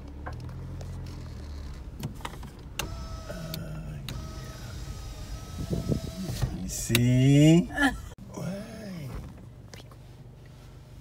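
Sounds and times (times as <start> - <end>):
electric window motor running: 2.8 - 6.6.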